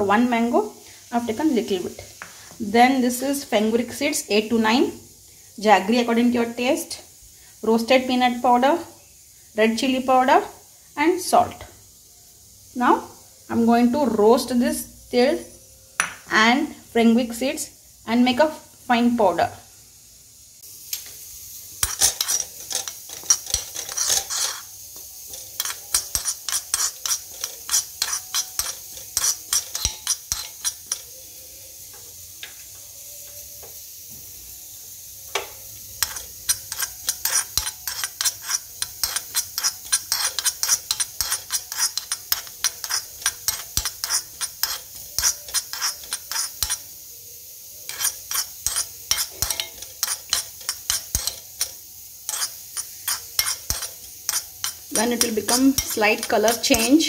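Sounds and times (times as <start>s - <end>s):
metal spoon scraping pan: 20.9s - 31.6s, 36.0s - 47.0s, 47.7s - 57.0s.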